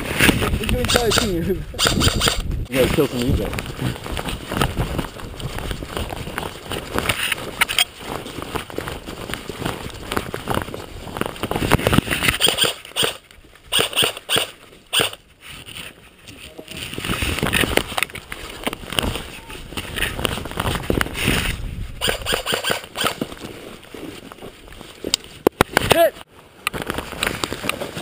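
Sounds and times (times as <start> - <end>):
footsteps: 2.5 - 28.0.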